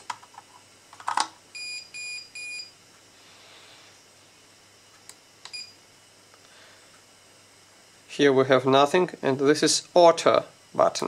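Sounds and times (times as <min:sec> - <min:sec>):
multimeter beeps: 0:01.5 - 0:02.7, 0:05.5 - 0:05.8.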